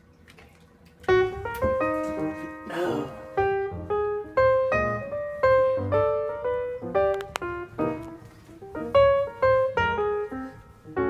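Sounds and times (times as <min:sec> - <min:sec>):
piano music: 0:01.0 - 0:11.0.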